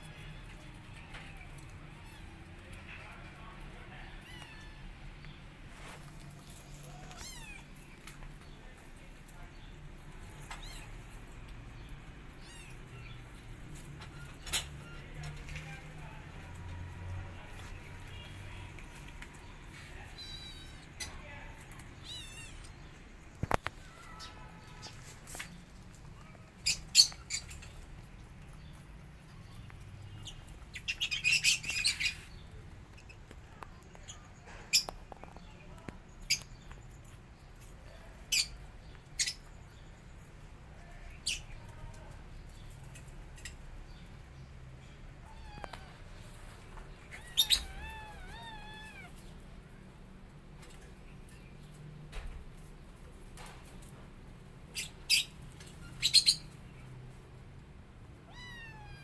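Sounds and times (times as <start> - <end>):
kittens mewing: 6.8 - 7.7, 45.2 - 46.2, 47.0 - 49.2, 58.2 - 59.0.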